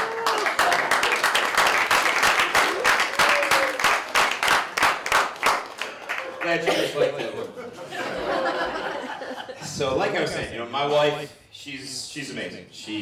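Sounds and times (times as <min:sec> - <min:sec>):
audience applauding: 0:00.0 - 0:06.8.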